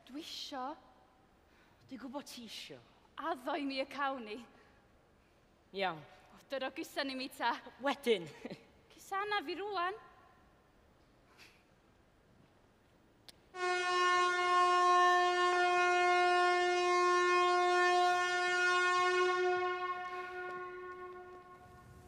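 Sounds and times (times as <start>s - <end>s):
pit hooter long blast: 13.6s - 22.0s.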